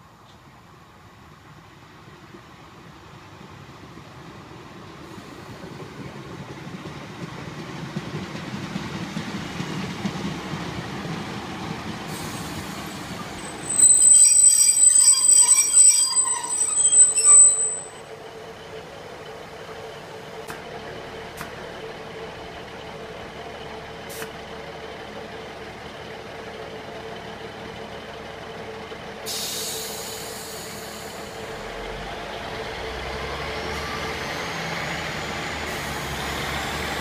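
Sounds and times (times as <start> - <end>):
train rumbling: 0.1 - 37.0
train brakes squealing: 12.0 - 18.5, 29.2 - 32.0, 33.2 - 37.0.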